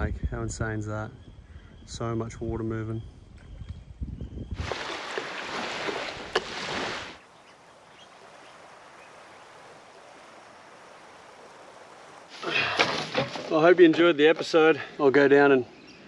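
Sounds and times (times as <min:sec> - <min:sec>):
water rushing: 0:04.6 - 0:13.8.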